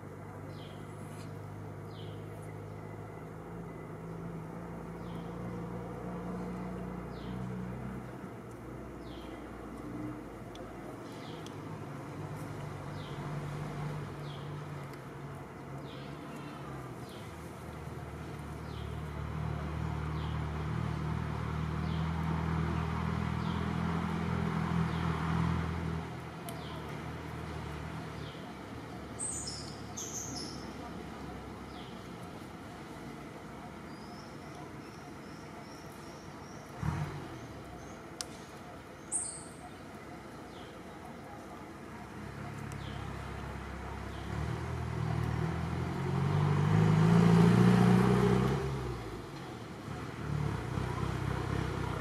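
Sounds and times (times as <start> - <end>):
engine humming: 0.0 - 52.0.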